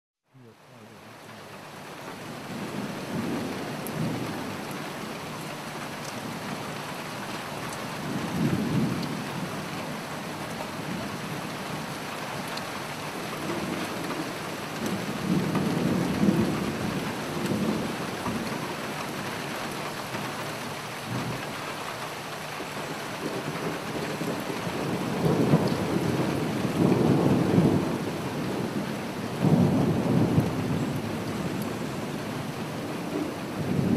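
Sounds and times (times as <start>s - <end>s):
heavy rain: 0.3s - 33.9s
thunder rumbling: 2.3s - 5.1s, 8.0s - 11.9s, 13.1s - 21.5s, 22.9s - 33.9s.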